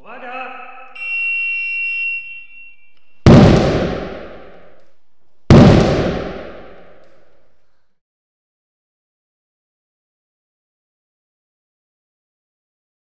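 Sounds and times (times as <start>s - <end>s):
high steady beep: 1.0s - 3.2s
electric arc flash bangs: 3.3s - 4.7s, 5.5s - 7.0s.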